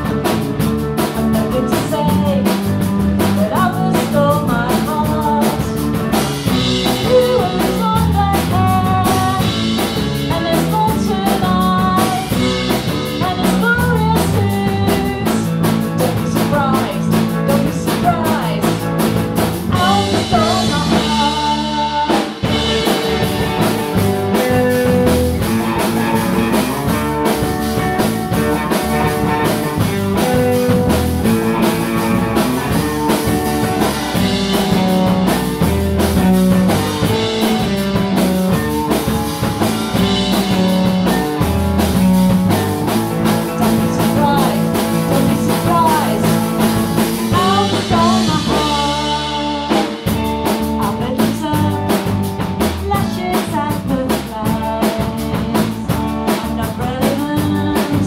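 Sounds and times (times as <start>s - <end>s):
drum kit: 0.0s - 58.0s
electric bass: 0.0s - 58.0s
electric guitars: 0.0s - 58.0s
woman singing: 1.1s - 27.1s, 39.9s - 58.0s.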